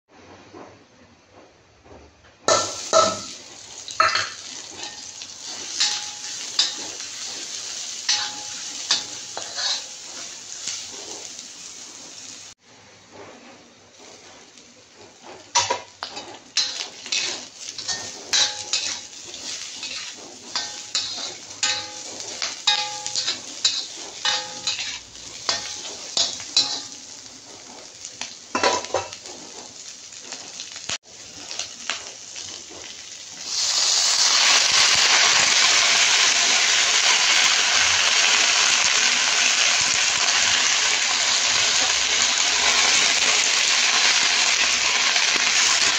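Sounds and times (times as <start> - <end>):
light frying sizzle: 2.5 - 12.6, 13.6 - 45.9
loud sizzle of greens in oil: 2.5 - 12.6, 13.9 - 45.9
metal spatula scraping a wok: 2.5 - 30.8.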